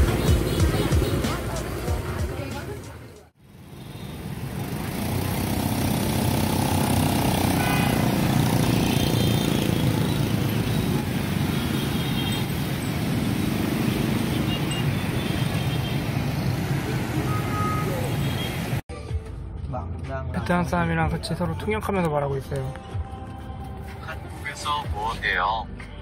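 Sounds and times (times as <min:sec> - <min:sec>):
scooter and motorcycle traffic: 0:00.0 - 0:18.8.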